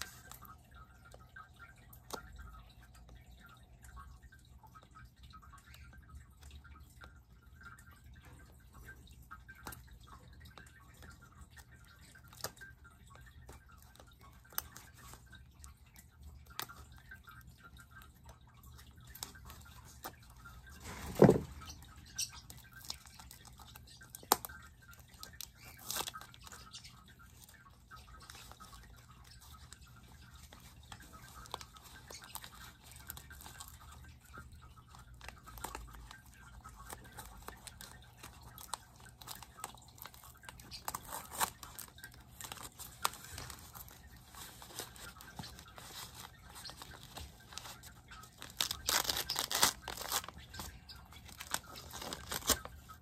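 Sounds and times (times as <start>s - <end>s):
packaging crinkles: 36.8s - 53.0s.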